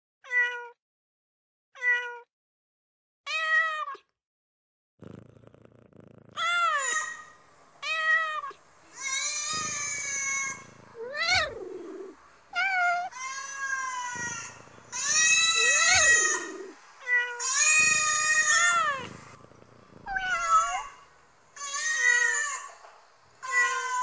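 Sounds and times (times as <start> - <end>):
kittens meowing: 6.4 - 21.0, 21.6 - 22.8, 23.4 - 24.0.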